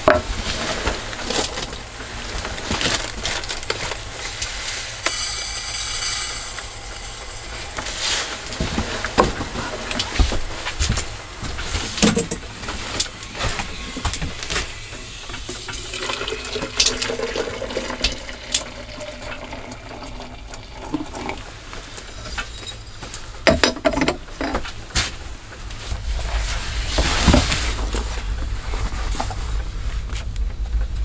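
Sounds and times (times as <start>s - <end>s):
water pouring into a pot: 5.0s - 8.0s, 15.5s - 21.6s.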